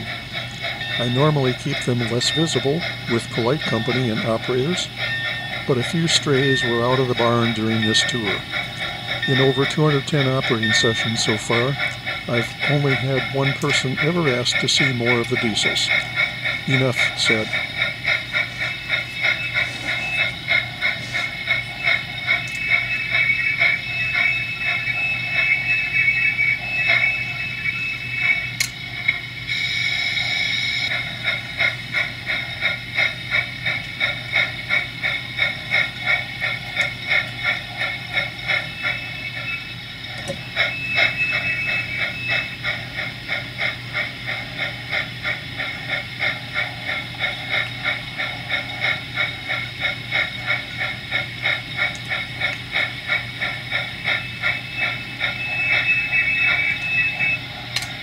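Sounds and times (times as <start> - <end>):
steam hiss: 0.0 - 28.5
model steam locomotive chuffing: 0.0 - 58.0.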